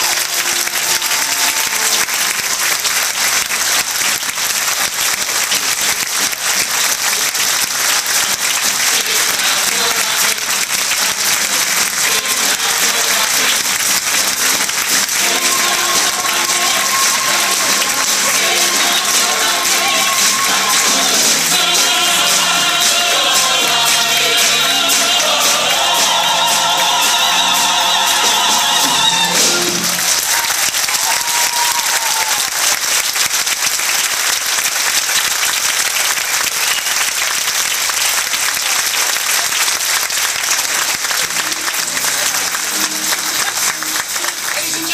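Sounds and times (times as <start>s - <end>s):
music: 0.0s - 32.4s, 40.3s - 44.9s
audience applauding: 0.0s - 44.9s
cast singing with band: 15.2s - 30.0s.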